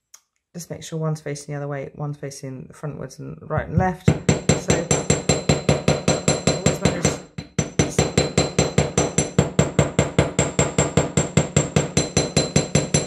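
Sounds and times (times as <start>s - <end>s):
hammer striking wire on metal: 4.0s - 13.0s.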